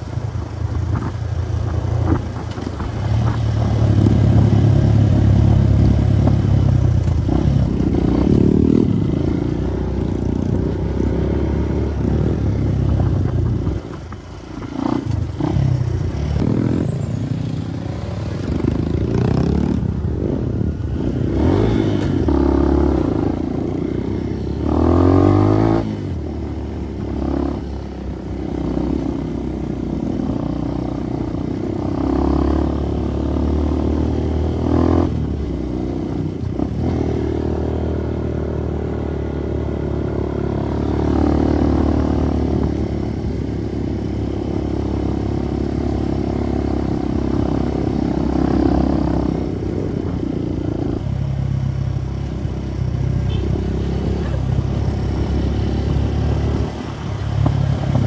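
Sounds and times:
motorcycle engine revving: 1.7 - 58.0.

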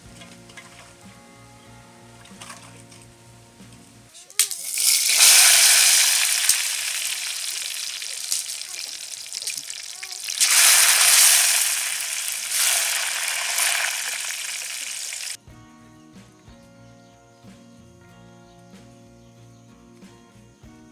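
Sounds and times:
oil sizzling loudly: 4.3 - 15.4.

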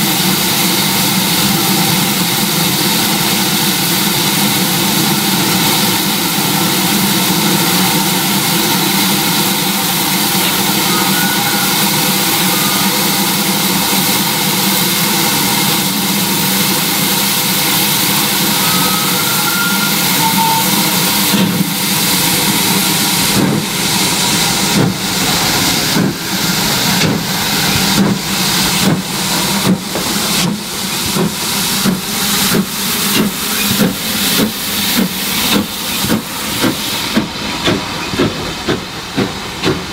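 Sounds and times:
loud hiss of escaping steam: 0.0 - 39.9
steam locomotive exhaust beats: 0.0 - 39.9.

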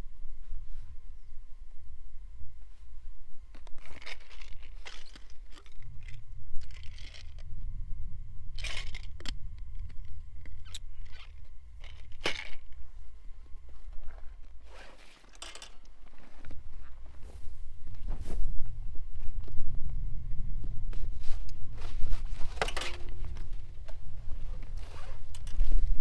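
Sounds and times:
wind rumble on microphone: 0.0 - 14.9, 15.9 - 26.0
crinkly rustling of gear: 3.5 - 7.5, 8.5 - 18.6, 21.0 - 26.0.

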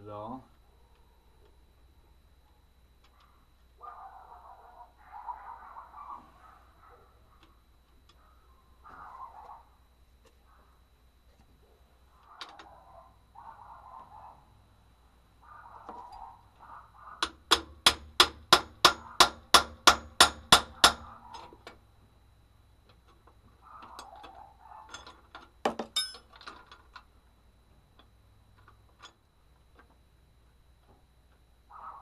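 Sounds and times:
metal clank with ring: 25.8 - 26.3.

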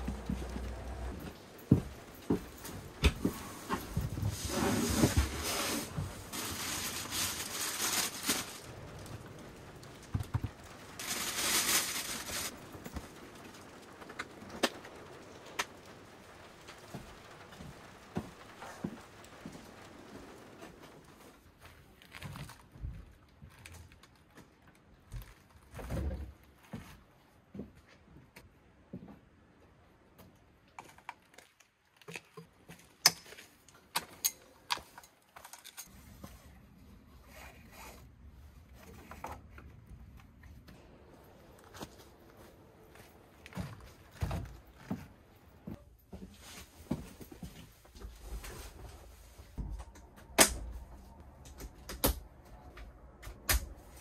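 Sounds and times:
bag rustling: 3.7 - 8.7, 10.9 - 12.6.

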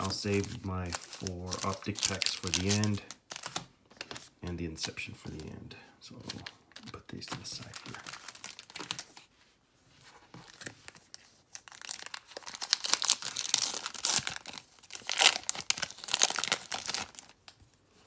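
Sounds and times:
foil wrapper crinkling and tearing: 0.0 - 4.2, 6.2 - 9.2, 11.5 - 17.5.

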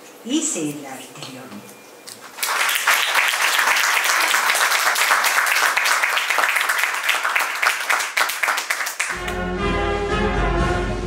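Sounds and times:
audience applauding: 2.2 - 9.4
music: 9.1 - 11.0.

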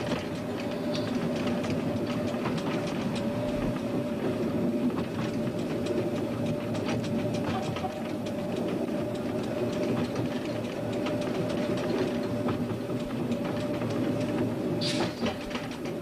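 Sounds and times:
train rumbling along track: 0.0 - 16.0
wheels clicking over rails: 0.0 - 16.0.

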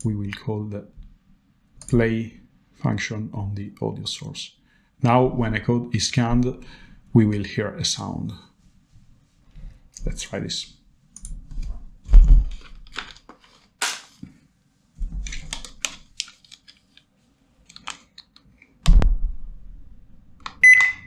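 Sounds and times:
heavy thumps: 11.6 - 12.6, 18.8 - 19.6.

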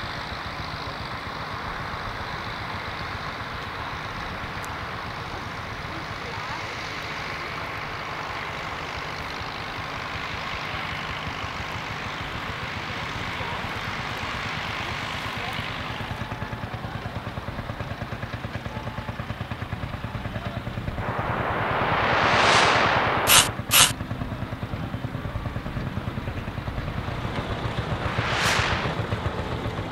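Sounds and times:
rushing noise: 20.9 - 23.9, 27.5 - 29.4.

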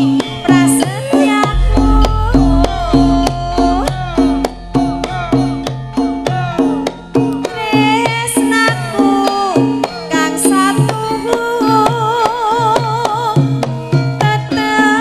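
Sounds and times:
deep low hum: 1.5 - 7.8
metallophone notes: 1.5 - 8.1
hand drum strokes: 1.5 - 9.6.

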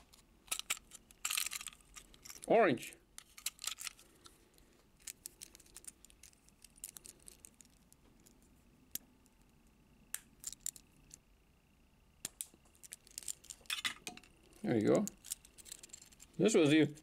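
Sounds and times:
plastic toys clicking and tapping: 0.1 - 2.5.

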